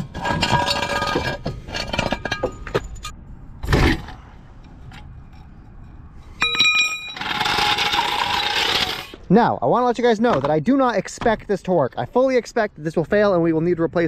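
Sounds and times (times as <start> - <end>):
metal clanks and clinks: 0.0 - 3.2, 4.9 - 9.0
ringing metallic clangs: 5.2 - 8.6.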